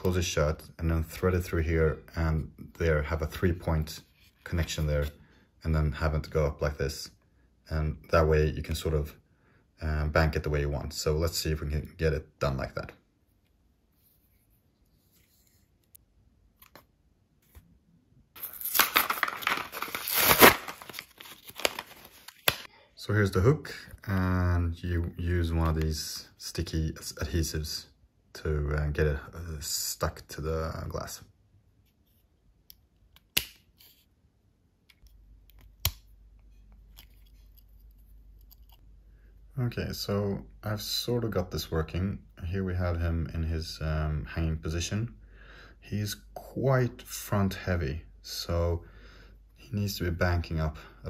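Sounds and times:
plastic packaging tearing: 18.4s - 22.7s
plastic rustling: 18.4s - 22.7s.

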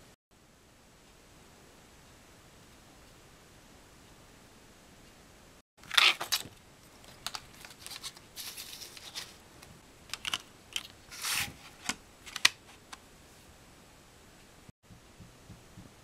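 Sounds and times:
plastic case rustle: 5.8s - 9.4s, 10.1s - 13.0s.

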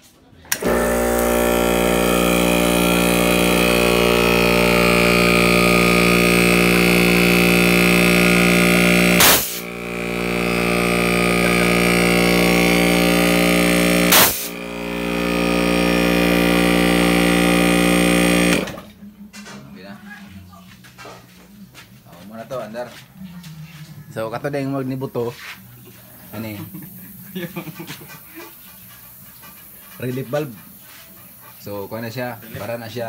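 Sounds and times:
compressor electric hum: 0.4s - 19.4s
relief valve popping off: 0.5s - 18.8s.

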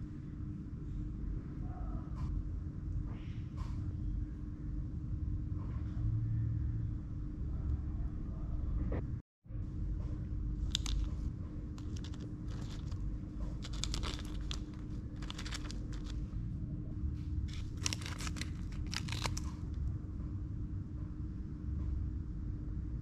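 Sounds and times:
steady low hum: 0.0s - 23.0s
packaging crinkling: 10.7s - 11.2s, 11.8s - 16.2s, 17.5s - 19.6s.

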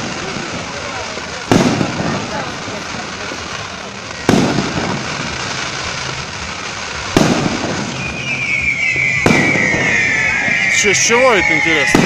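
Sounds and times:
fireworks noise: 0.0s - 12.0s
firework shells bursting: 4.2s - 12.0s
high firework whistle: 7.0s - 12.0s.

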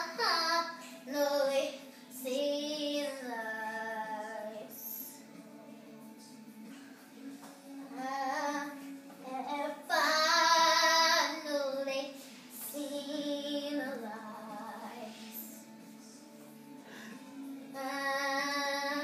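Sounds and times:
young girl singing: 0.0s - 5.2s, 7.4s - 15.7s, 17.6s - 19.0s
background music: 0.0s - 19.0s.

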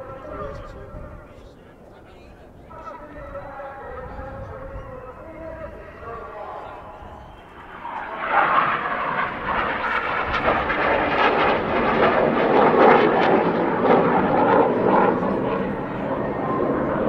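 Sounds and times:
jets flying past: 3.9s - 17.0s.

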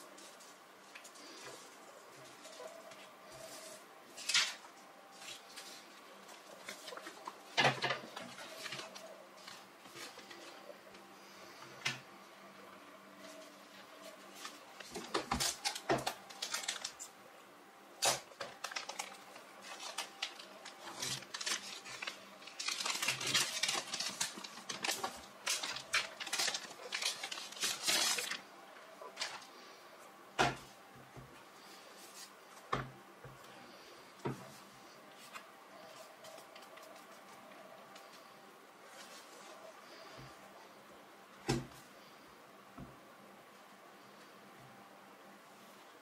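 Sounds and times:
plastic film crinkling: 0.0s - 11.1s, 13.1s - 17.2s, 18.0s - 29.6s
sharp clicks and crackles: 18.0s - 28.4s.

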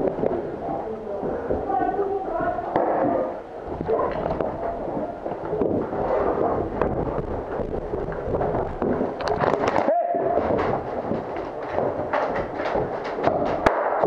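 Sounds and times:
crackling pops and knocks: 2.7s - 14.0s
sharp cracks: 8.1s - 14.0s.

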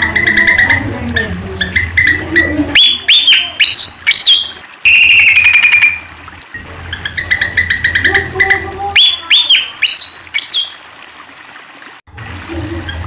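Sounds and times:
bird chirping and whistling: 0.0s - 6.1s, 7.0s - 10.8s
low hum: 0.0s - 10.5s.

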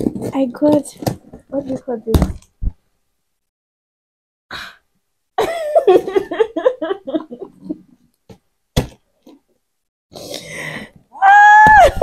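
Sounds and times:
woman laughing: 5.4s - 7.8s.

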